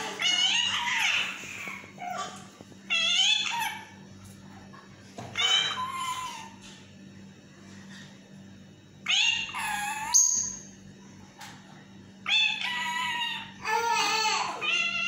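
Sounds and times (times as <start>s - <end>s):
parrot calling: 0.0s - 4.0s, 5.3s - 6.6s, 9.1s - 10.7s, 12.3s - 13.6s.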